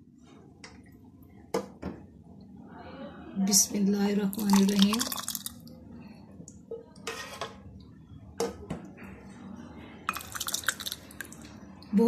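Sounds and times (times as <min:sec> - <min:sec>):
milk pouring into mug: 0:04.3 - 0:05.6, 0:10.1 - 0:11.5.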